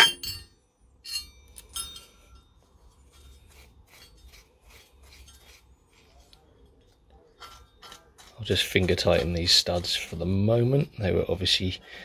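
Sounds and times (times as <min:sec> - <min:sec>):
metal clinks: 0:00.0 - 0:03.4.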